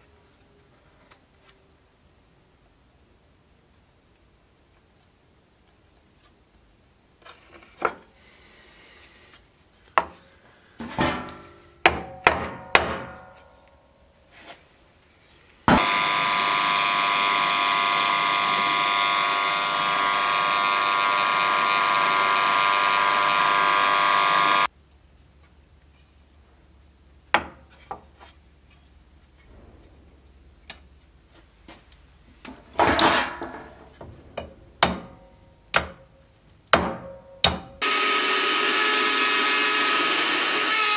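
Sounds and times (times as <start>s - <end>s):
knocks of wood and steel: 10.8s - 13.7s, 15.7s - 20.5s, 32.5s - 37.9s
power tool whining hum: 15.7s - 24.7s, 37.8s - 40.9s.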